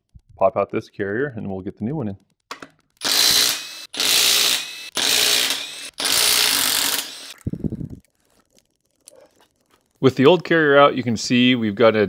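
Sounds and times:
impact driver bursts: 3.0 - 7.4.

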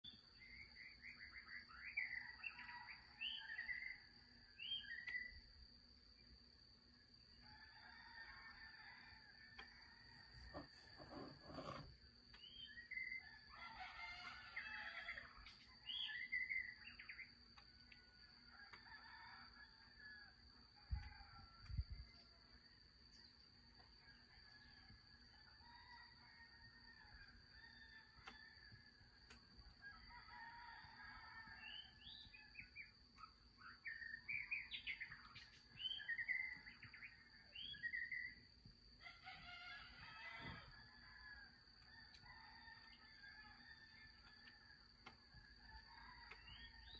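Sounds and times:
crickets chirping: 0.0 - 46.9
faint rooster crowing: 1.9 - 5.2, 7.3 - 46.9
small birds chirping and whistling: 33.2 - 38.4.

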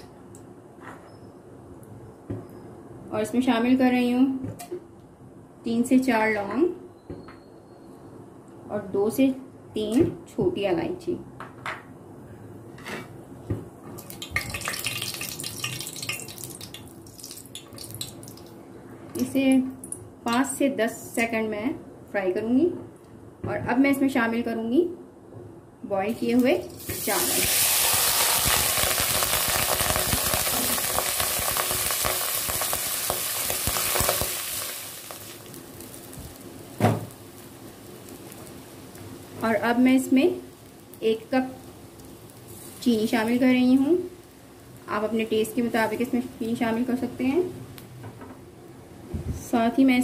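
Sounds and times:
spices sizzling in hot fat: 14.0 - 18.6, 26.1 - 48.0
loud thump: 36.8 - 37.1.

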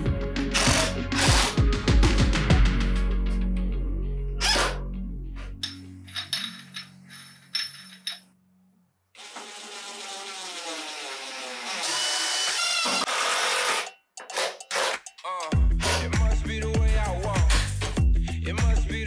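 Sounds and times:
cordless drill driving screws: 9.2 - 15.0.

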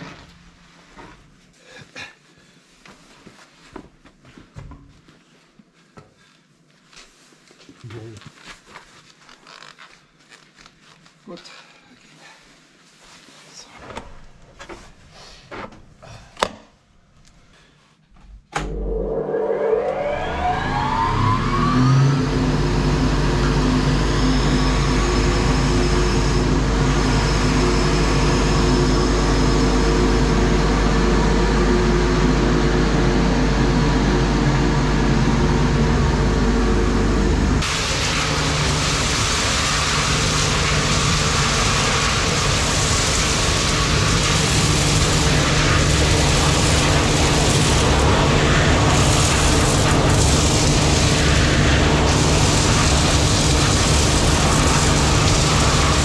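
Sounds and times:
blower fan whine: 18.3 - 56.0
engine drone: 18.6 - 56.0
wood chips rushing through blower: 18.6 - 56.0.

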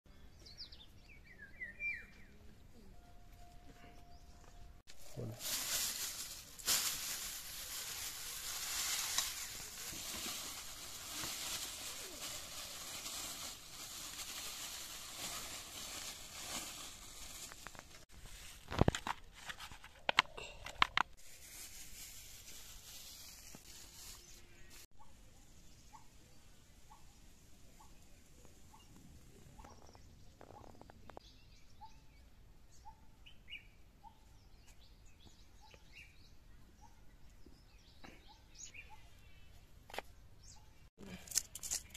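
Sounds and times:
plastic bag rustling: 4.9 - 20.2, 20.9 - 24.9.

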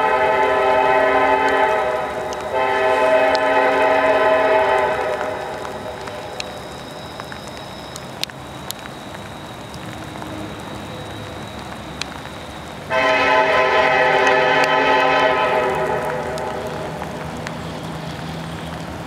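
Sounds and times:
train air horn chord: 0.0 - 5.6, 12.9 - 16.6
faint high whine: 0.0 - 18.9
locomotive rumble: 0.0 - 19.0.

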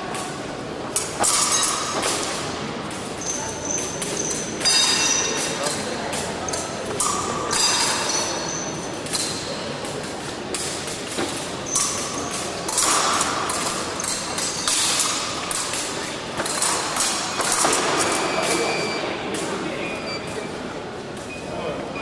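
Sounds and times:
fencing blades clicking: 0.1 - 18.6
shoe squeaks: 3.2 - 4.6, 18.2 - 19.1.

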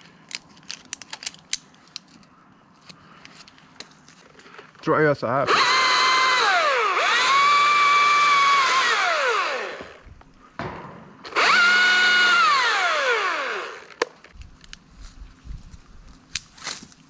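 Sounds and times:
chainsaw revving: 5.4 - 10.0, 11.3 - 14.0.

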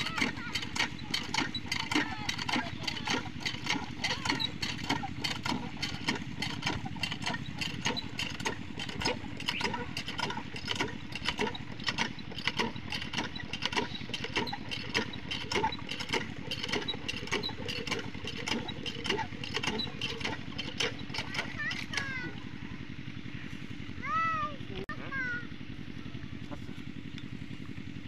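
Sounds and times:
diesel engine knocking: 0.0 - 28.0.

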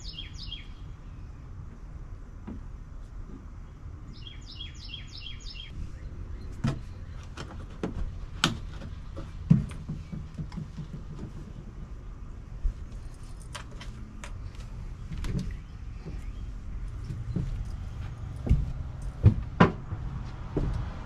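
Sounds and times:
songbird chirping: 0.0 - 1.8, 3.3 - 7.7, 14.0 - 19.2
sharp clicks and knocks: 6.6 - 11.6.

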